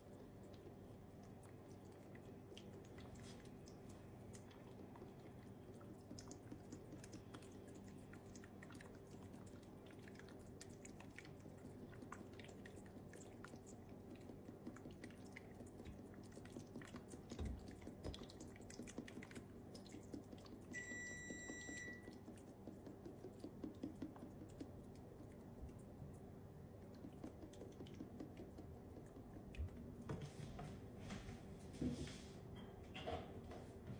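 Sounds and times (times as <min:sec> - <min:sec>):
low steady hum: 0:00.0 - 0:33.9
high beep: 0:20.8 - 0:22.1.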